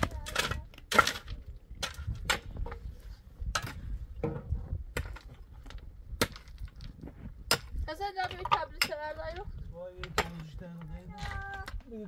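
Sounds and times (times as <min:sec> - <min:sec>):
stones and tools knocking: 0:03.5 - 0:12.0.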